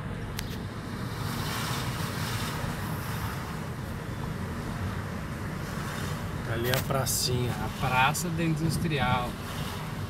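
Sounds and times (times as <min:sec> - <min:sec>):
car engine and road rumble: 0:00.0 - 0:10.0.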